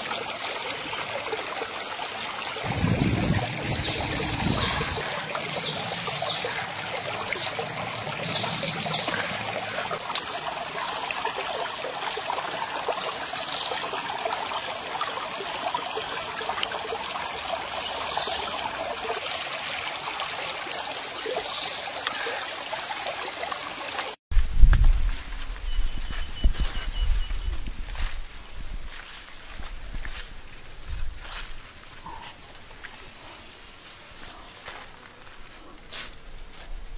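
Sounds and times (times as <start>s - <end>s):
stream trickling: 0.0s - 24.2s, 24.8s - 36.9s.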